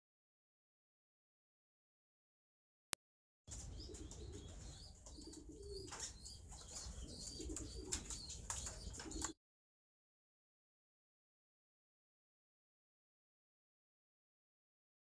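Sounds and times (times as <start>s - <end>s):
pigeons cooing: 3.5s - 9.4s.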